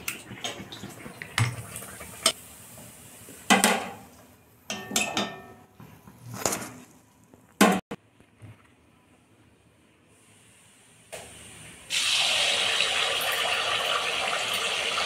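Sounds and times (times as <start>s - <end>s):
metal utensils clinking on bowls: 4.7s - 5.7s.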